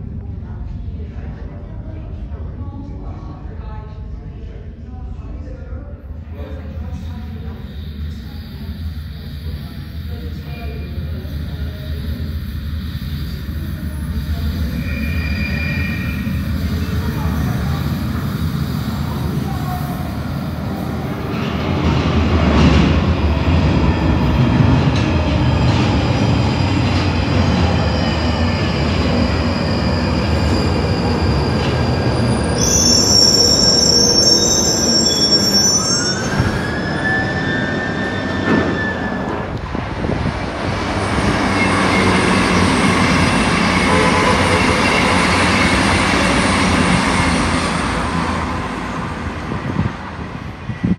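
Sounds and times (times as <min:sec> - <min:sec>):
underground train rumble: 0:00.0 - 0:50.9
metallic wheel squeal: 0:14.7 - 0:16.4, 0:29.3 - 0:39.4.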